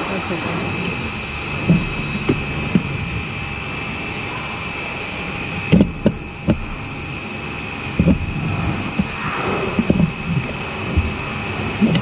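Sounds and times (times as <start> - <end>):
faint high whine: 0.0 - 12.0
steady workshop hum: 0.0 - 12.0
dull knocks and clunks: 1.6 - 3.1, 5.7 - 6.9, 8.0 - 9.2.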